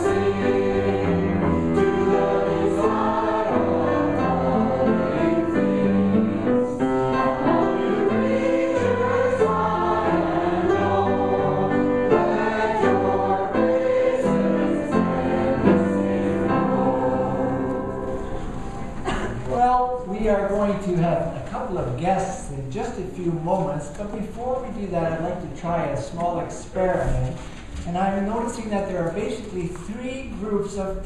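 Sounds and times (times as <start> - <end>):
congregation singing a hymn: 0.0 - 19.3.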